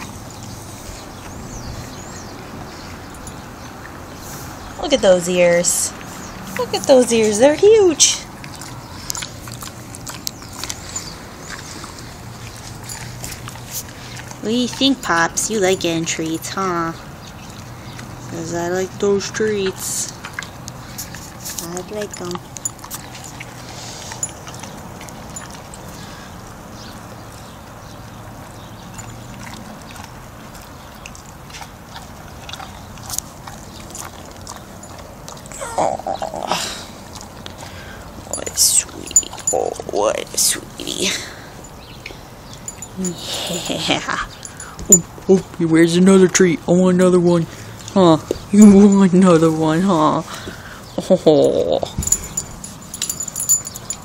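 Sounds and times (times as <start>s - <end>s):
dog chewing treat crunches: 8.3s - 16.2s, 19.4s - 26.1s, 28.5s - 35.6s.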